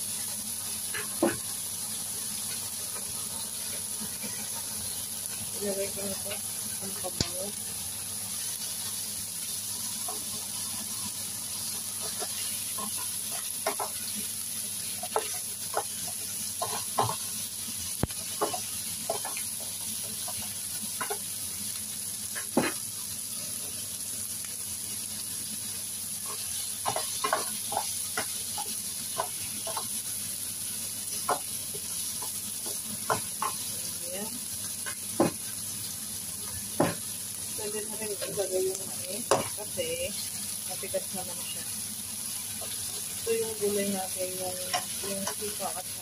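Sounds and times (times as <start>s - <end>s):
food sizzling in oil: 0.0s - 46.0s
spatula tapping and scraping pan: 11.9s - 14.2s, 14.8s - 17.3s, 18.0s - 21.3s, 22.4s - 22.8s, 26.3s - 30.0s, 31.1s - 33.7s, 39.2s - 39.6s, 44.6s - 45.6s.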